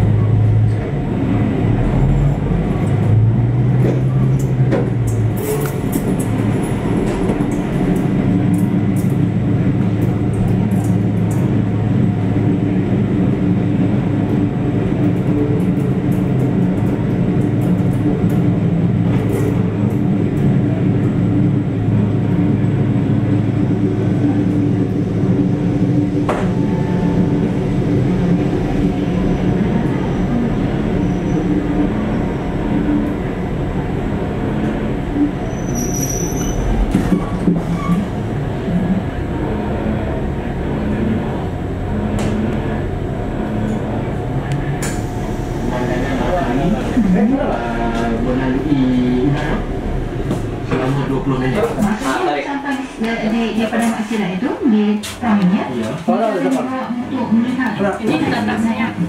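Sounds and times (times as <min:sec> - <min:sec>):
railcar engine drone: 0:00.0 - 0:59.0
rising squeak: 0:35.5 - 0:38.1.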